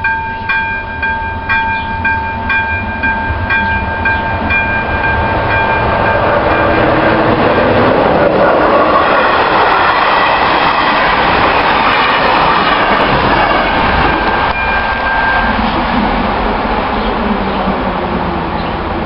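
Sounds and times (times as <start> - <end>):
train coaches rushing past: 0.0 - 19.0.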